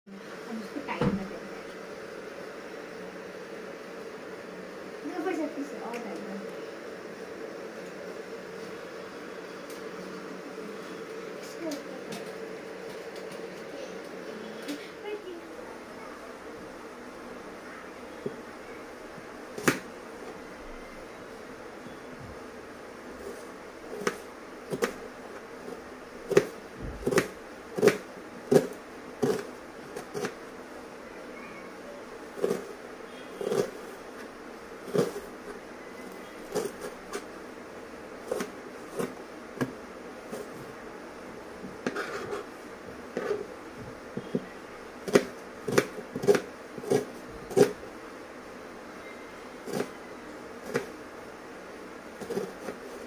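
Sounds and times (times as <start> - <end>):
knife chopping on plastic board: 19.6 - 19.9, 23.2 - 25.0, 26.3 - 30.4, 32.4 - 32.8, 33.4 - 33.8, 34.8 - 35.3, 36.5 - 37.3, 38.2 - 40.6, 44.2 - 47.8, 49.7 - 50.0, 50.6 - 51.0, 52.2 - 53.0.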